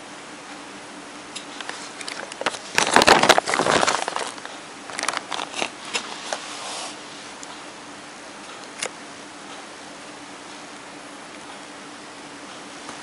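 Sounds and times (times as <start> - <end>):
steady hiss: 0.0 - 8.4
faint hum: 0.0 - 13.0
packaging crinkling: 1.6 - 6.4.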